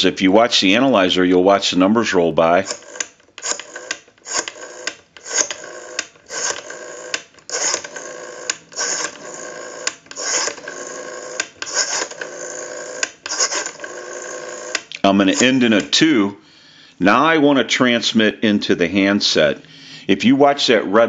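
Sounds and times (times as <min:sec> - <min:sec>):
rotary telephone dial clicking: 0:02.6 - 0:15.5.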